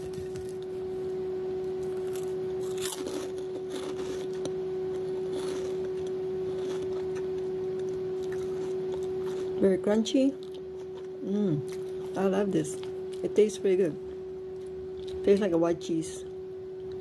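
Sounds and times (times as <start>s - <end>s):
steady humming tone: 0.0s - 17.0s
chips crunching while chewed: 1.8s - 9.6s, 10.4s - 13.3s.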